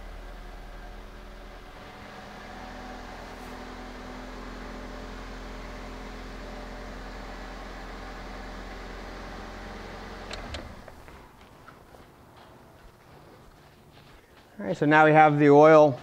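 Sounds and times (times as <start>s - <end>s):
car engine idling: 0.0s - 12.4s.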